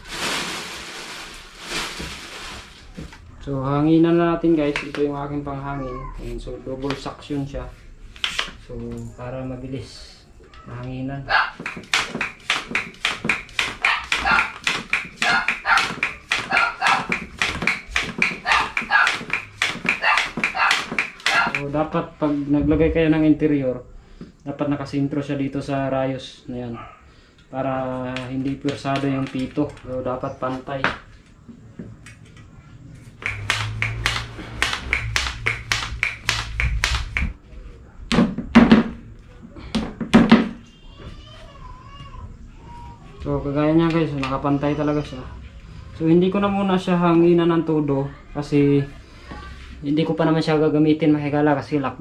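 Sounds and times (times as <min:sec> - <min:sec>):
hands tapping bicycle tyre: 0:11.5 - 0:21.6, 0:33.2 - 0:37.4.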